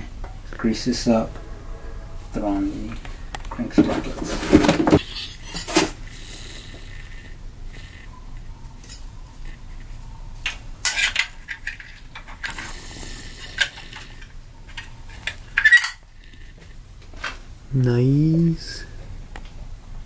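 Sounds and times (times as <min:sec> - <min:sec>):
metallic clinks and scrapes: 0:01.1 - 0:06.2, 0:15.1 - 0:16.5.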